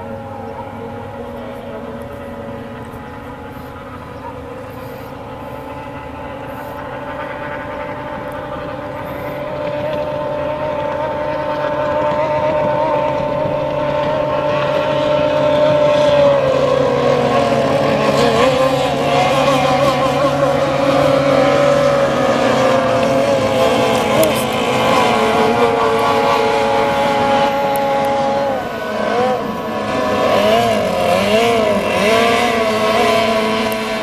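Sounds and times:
racing boat engines whining: 0.0 - 34.0.

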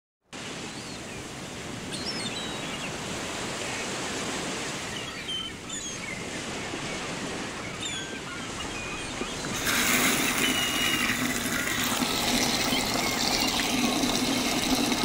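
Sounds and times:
ocean surf: 0.4 - 15.0
short high bird calls: 7.3 - 11.8.

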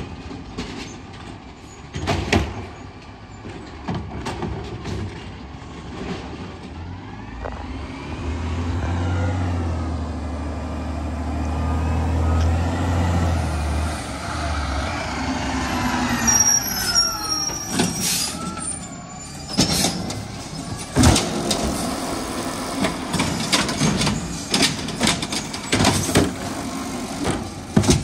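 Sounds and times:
garbage truck diesel engine revving: 5.0 - 28.0
high brake squeal: 14.2 - 21.0.

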